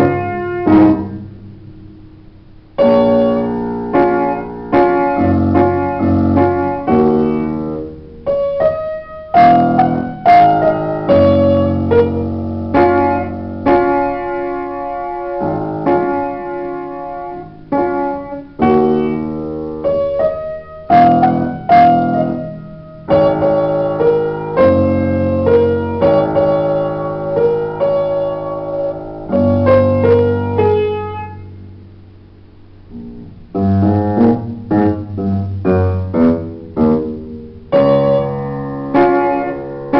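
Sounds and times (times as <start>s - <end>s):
upright piano playing: 0.0s - 39.9s.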